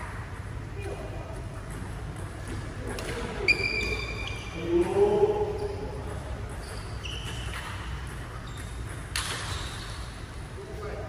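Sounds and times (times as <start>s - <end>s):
sneakers squeaking on court floor: 1.6s - 10.4s
racket hitting shuttlecock: 6.1s - 10.1s.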